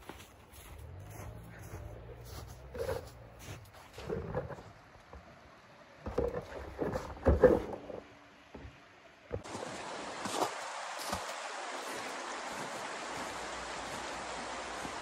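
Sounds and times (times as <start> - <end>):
footsteps crunching in snow: 0.0 - 4.8, 9.4 - 15.0.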